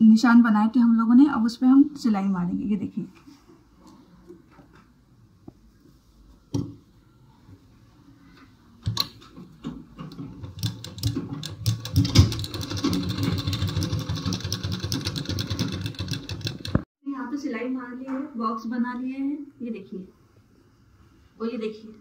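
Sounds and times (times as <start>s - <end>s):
sewing machine clicks: 10.1s - 16.8s
sewing machine stitching: 10.1s - 16.8s.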